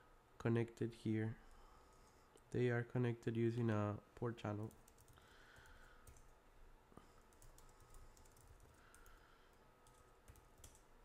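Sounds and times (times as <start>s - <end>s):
computer keyboard typing: 4.6s - 6.3s, 7.2s - 9.2s, 9.8s - 10.8s.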